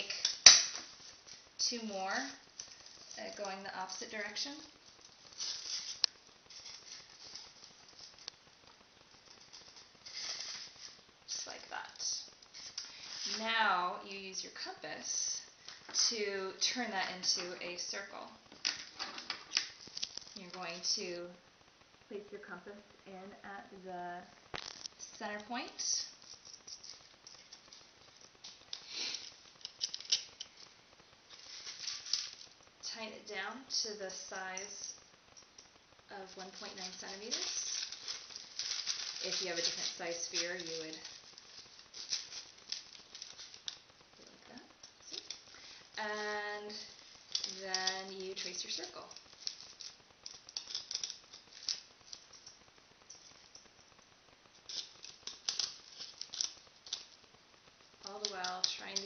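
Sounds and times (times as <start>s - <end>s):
metal compass scraping styrofoam: 0.0s - 13.8s, 36.2s - 44.0s.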